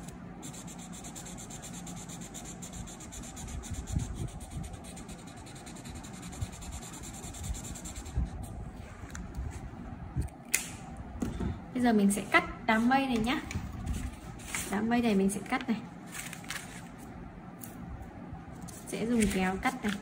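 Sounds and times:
marker rubbing on paper: 0.4s - 8.4s
sharp click: 10.2s - 10.8s.

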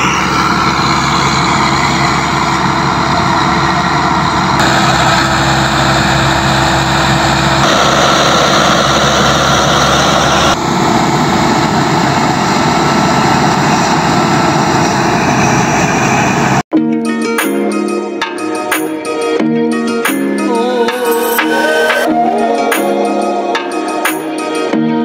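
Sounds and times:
thresher drum and blower whirring: 0.0s - 16.6s
tractor diesel engine running: 0.0s - 16.7s.

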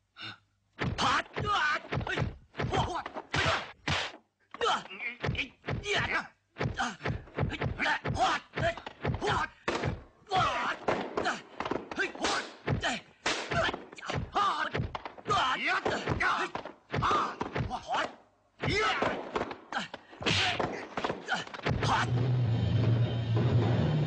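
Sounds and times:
punch and kick impacts: 0.8s - 4.2s, 5.2s - 18.0s, 18.6s - 19.6s, 20.2s - 22.2s
fighters shouting and grunting: 0.8s - 22.2s.

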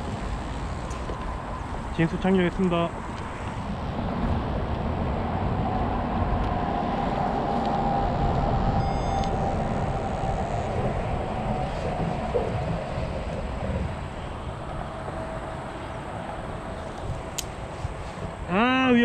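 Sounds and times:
wind rumbling on microphone: 0.0s - 19.0s
faint high beep: 8.5s - 11.5s.

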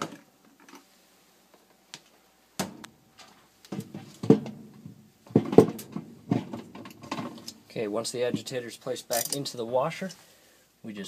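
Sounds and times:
hollow plastic knocks and clunks: 3.7s - 7.4s.

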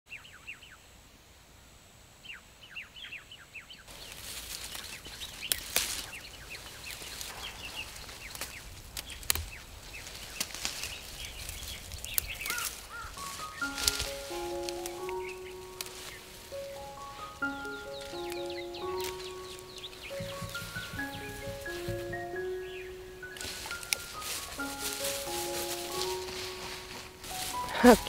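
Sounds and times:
birds chirping: 2.2s - 28.0s
fern fronds rustling: 3.9s - 28.0s
fern shoots snapping: 7.0s - 9.7s, 13.6s - 22.6s.

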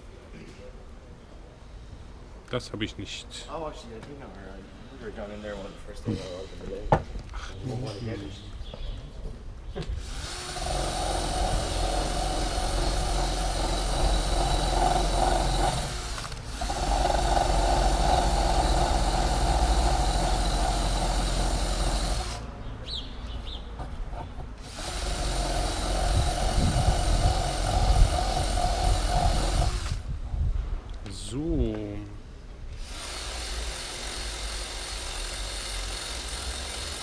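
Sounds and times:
electric power tool humming: 10.0s - 22.4s, 24.6s - 30.0s.

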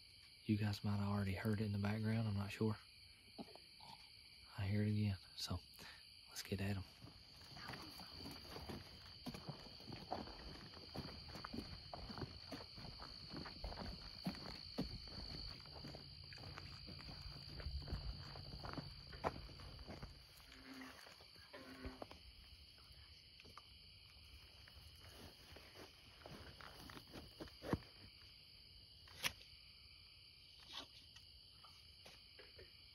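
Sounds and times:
night insects chorus: 0.0s - 32.9s
footsteps rustling through grass: 7.0s - 20.6s
bullfrog calling: 20.4s - 22.2s.

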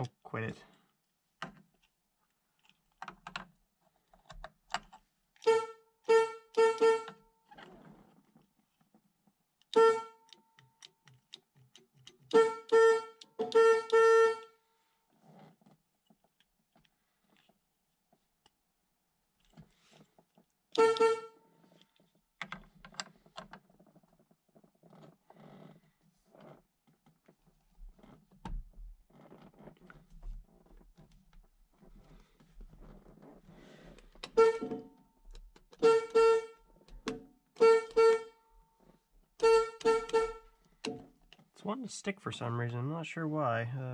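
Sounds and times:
car horn honks: 5.4s - 7.2s, 9.7s - 10.3s, 12.3s - 14.6s, 20.8s - 21.4s, 34.3s - 34.9s, 35.8s - 36.6s, 37.6s - 38.4s, 39.4s - 40.4s.

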